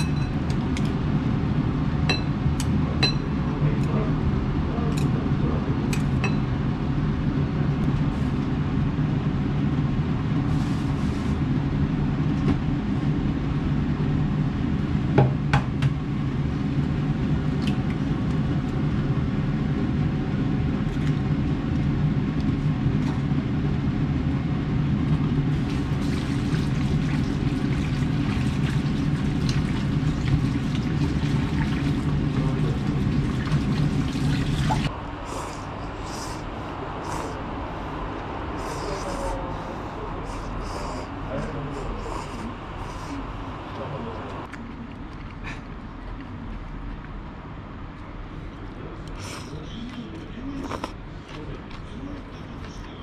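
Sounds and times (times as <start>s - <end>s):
utensils clinking on dish: 0.0s - 0.4s
kitchen hum: 0.0s - 53.0s.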